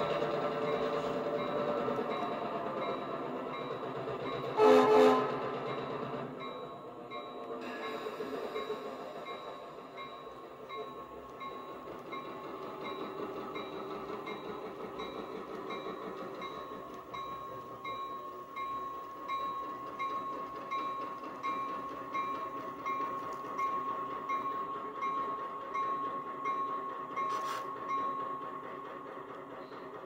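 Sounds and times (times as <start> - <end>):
model diesel locomotive engine: 0.0 - 30.0.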